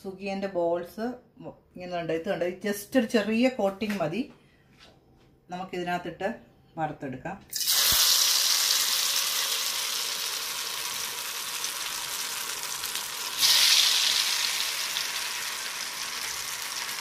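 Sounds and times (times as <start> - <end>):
batter balls sizzling in oil: 7.5 - 17.0.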